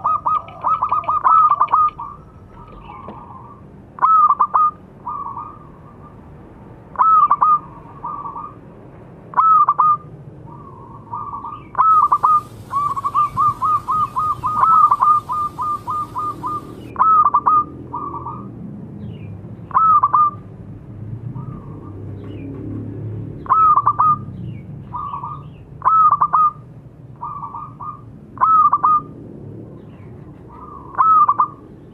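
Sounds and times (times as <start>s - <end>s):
dove cooing with rolling trill: 0.0s - 6.1s, 9.4s - 18.5s, 27.2s - 29.2s, 30.5s - 31.6s.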